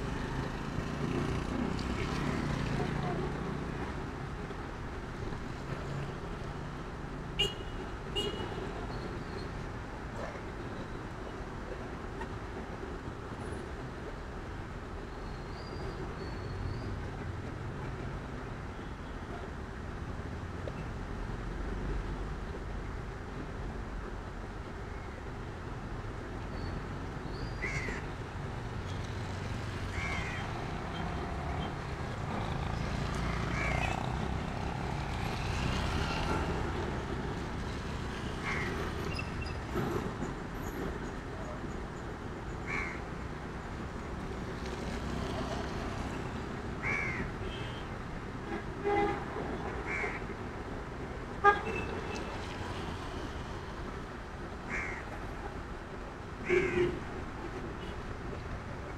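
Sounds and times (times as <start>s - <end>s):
street traffic rumble: 0.0s - 58.9s
crow cawing: 29.9s - 30.6s, 42.7s - 43.0s, 46.8s - 47.2s, 49.9s - 50.2s, 54.7s - 55.0s.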